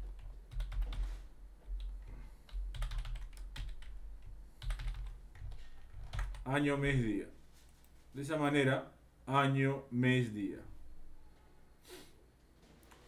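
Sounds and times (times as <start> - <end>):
typing on computer keyboard: 0.0 - 1.1, 2.5 - 6.5.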